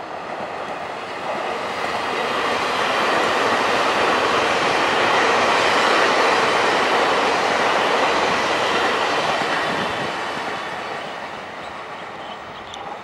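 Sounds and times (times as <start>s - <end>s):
passenger train on rails: 0.0s - 13.0s.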